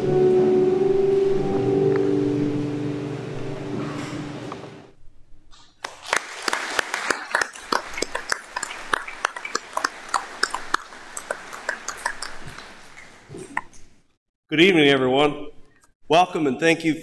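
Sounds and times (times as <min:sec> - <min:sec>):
final musical chord: 0:00.0 - 0:04.8
crowd applauding: 0:05.8 - 0:12.8.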